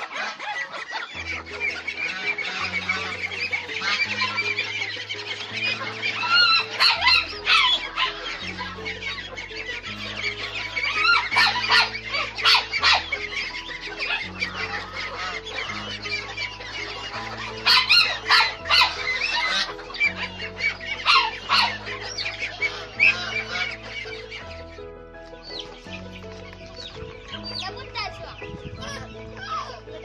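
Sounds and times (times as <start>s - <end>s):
background music with low notes: 0.0s - 30.0s
ducks calling: 0.0s - 30.0s
hens clucking and squawking: 0.0s - 30.0s.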